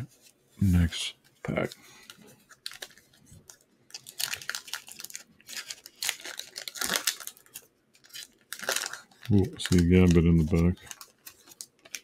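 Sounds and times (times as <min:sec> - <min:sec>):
foil wrapper crinkling and tearing: 0:01.4 - 0:12.0.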